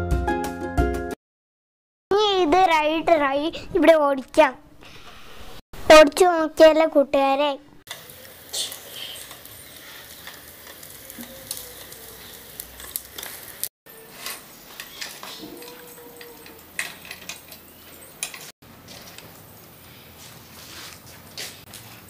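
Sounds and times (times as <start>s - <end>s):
scooter wheels rolling on stone: 7.9s - 22.0s
scooter clicks and rattles: 9.2s - 19.7s.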